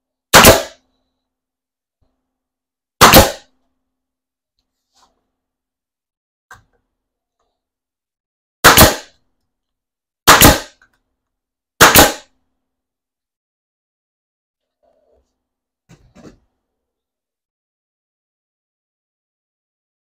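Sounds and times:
loud sharp bangs: 0.3s - 0.8s, 3.0s - 3.4s, 8.6s - 9.1s, 10.3s - 10.7s, 11.8s - 12.3s.

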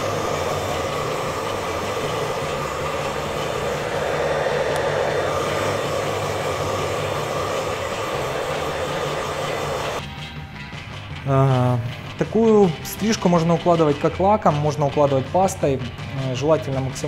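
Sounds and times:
hair dryer blowing: 0.0s - 10.0s.

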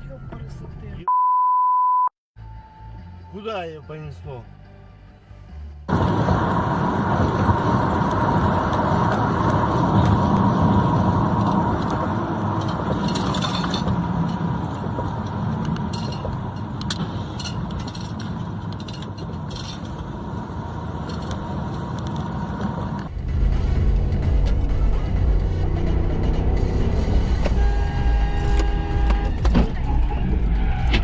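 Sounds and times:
car road and engine noise: 0.0s - 1.1s, 2.4s - 31.0s.

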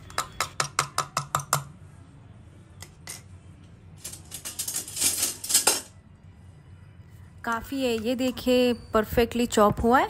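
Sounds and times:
metal spoon tapping plastic bowl: 0.0s - 1.7s.

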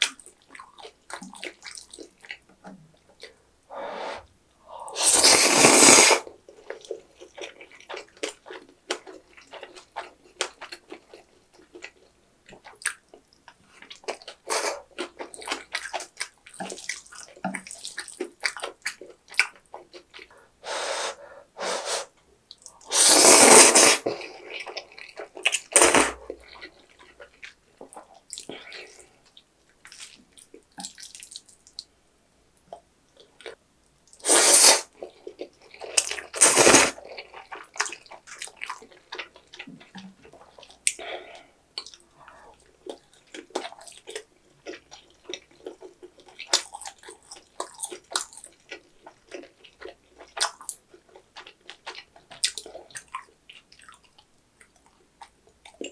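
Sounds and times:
wet chewing: 0.0s - 3.4s, 4.9s - 20.4s, 32.7s - 55.9s
noodles slurped: 4.9s - 7.0s, 22.8s - 26.8s, 34.2s - 35.0s, 35.8s - 39.1s.

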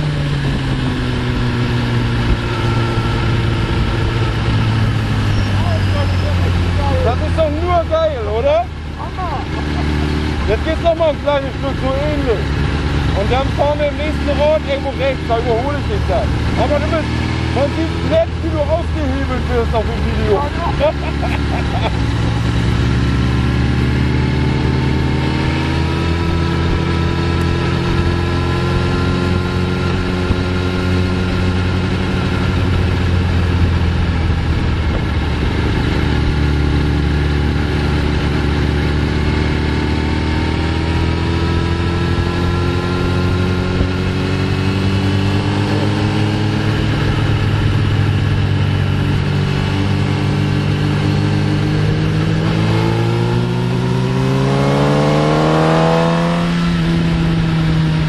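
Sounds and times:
motorcycle engine revving: 0.0s - 58.0s
wind noise: 20.2s - 58.0s.

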